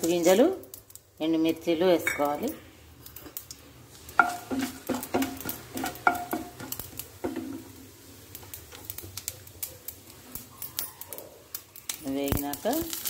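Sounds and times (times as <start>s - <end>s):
seeds frying in hot oil: 0.0s - 13.0s
wooden spatula knocking metal pan: 4.2s - 7.7s.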